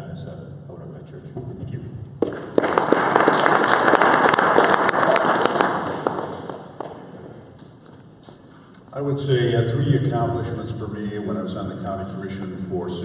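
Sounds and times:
audience applauding: 0:02.2 - 0:07.5.

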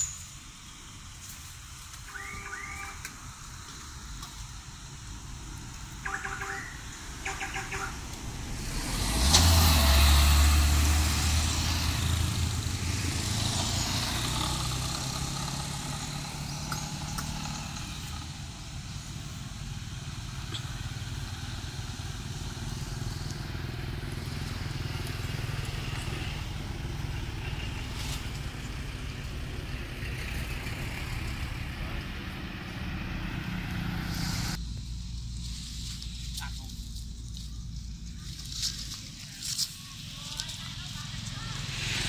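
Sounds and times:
road traffic: 0:00.0 - 0:42.0
motorbike engine: 0:07.2 - 0:34.8.

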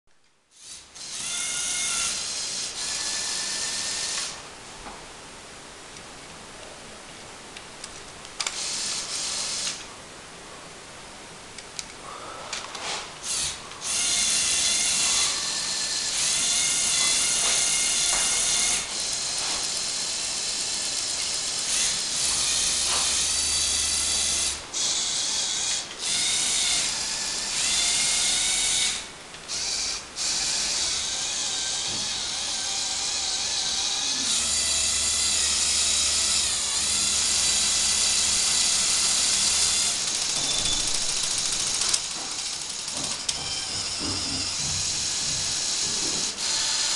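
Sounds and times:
electric motors whirring: 0:00.5 - 0:04.4, 0:08.4 - 0:09.9, 0:12.8 - 0:46.9.

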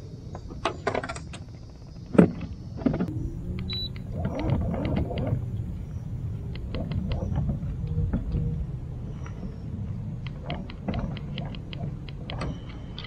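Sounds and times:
electric trolling motor hum: 0:03.1 - 0:09.6.

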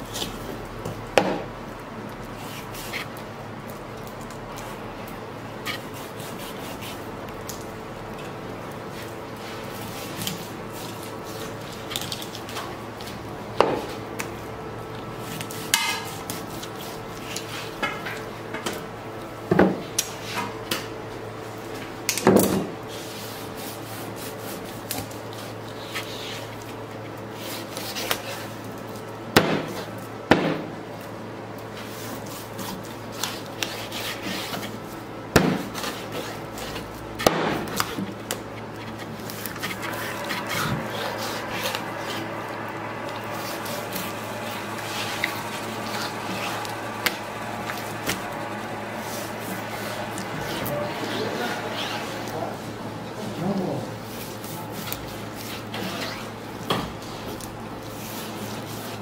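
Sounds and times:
steady low hum: 0:22.7 - 0:59.0
knife slicing and scraping: 0:35.6 - 0:42.3, 0:54.1 - 0:56.4.

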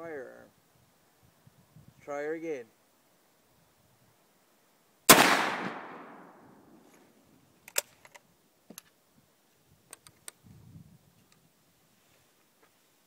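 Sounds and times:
rifle shot echo: 0:05.1 - 0:06.8
rifle bolt metallic clicks: 0:07.6 - 0:08.2.

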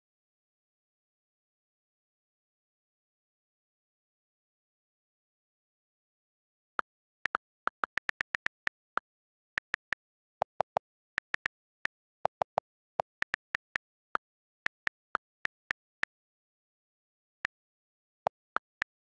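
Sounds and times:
on-screen keyboard key clicks: 0:07.3 - 0:09.0.

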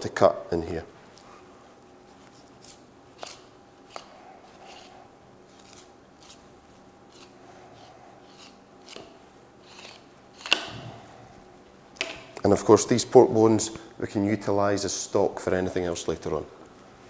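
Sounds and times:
knife scraping along bones: 0:02.2 - 0:06.4, 0:07.1 - 0:10.7.

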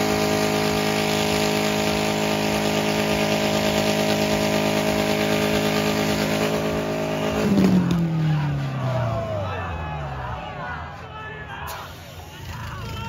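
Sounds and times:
car engine at steady revs: 0:00.0 - 0:09.4.

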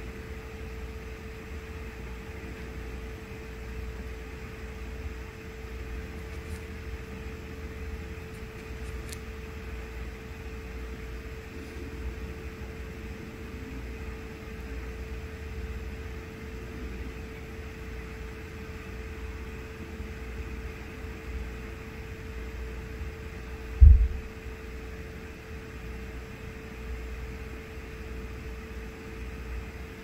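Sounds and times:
mechanical room hum: 0:00.0 - 0:30.0
low thump: 0:23.8 - 0:24.3.

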